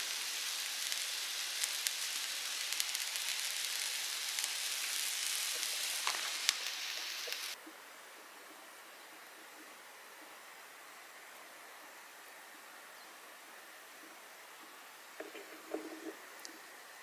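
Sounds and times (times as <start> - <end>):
food sizzling in a pan: 0.0 - 7.6
faint steady hiss: 0.0 - 17.0.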